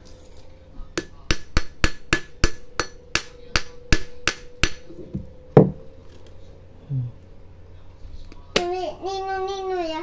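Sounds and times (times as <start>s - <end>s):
dull heavy knock: 5.1s - 5.8s.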